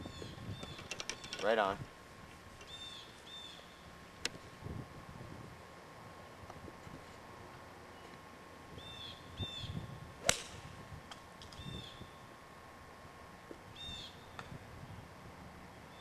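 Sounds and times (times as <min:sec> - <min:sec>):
birds chirping: 0:00.0 - 0:01.8, 0:02.6 - 0:04.0
golf club striking ball: 0:10.2 - 0:11.6.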